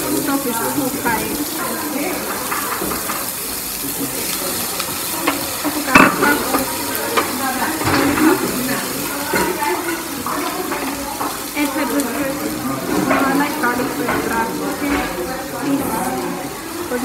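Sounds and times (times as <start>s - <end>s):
spoon knocking against pot: 5.3s - 8.3s.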